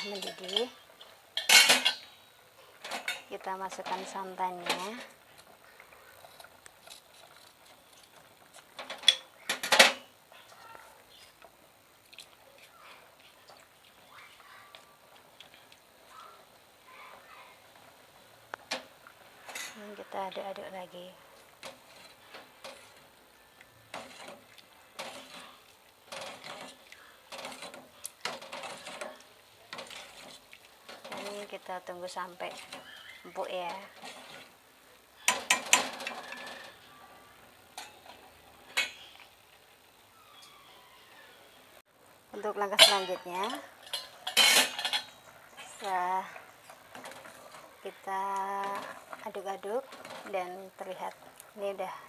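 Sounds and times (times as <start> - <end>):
metal spoon scraping pot: 0.0 - 2.2, 18.7 - 23.2, 23.8 - 34.6, 35.2 - 37.0, 42.8 - 51.5.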